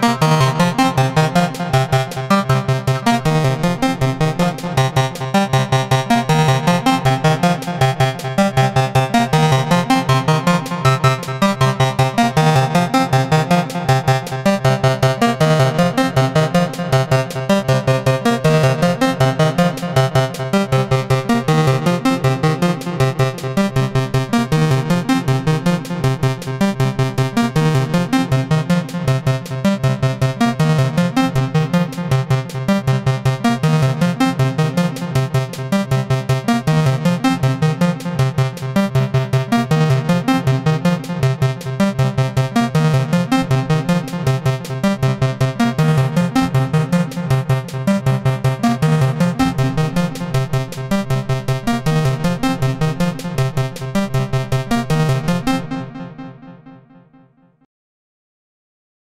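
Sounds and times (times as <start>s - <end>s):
pulsing synthesizer low notes: 0.0s - 57.4s.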